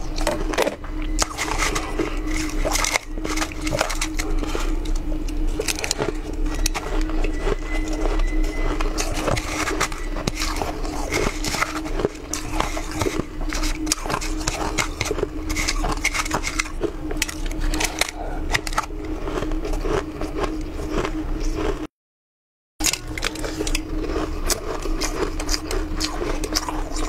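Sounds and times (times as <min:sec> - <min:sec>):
chewing shaved ice: 0:00.0 - 0:21.9, 0:22.8 - 0:27.0
steady low hum: 0:00.0 - 0:21.9, 0:22.8 - 0:27.0.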